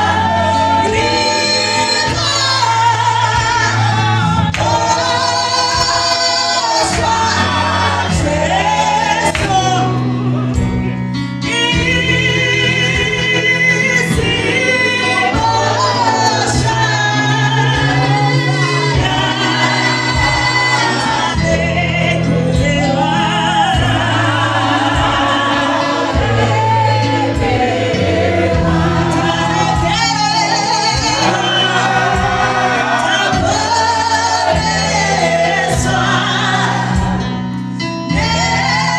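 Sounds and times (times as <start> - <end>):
backing singers: 0.0 - 38.9
bass line: 0.0 - 38.9
woman singing into a microphone: 0.0 - 38.9.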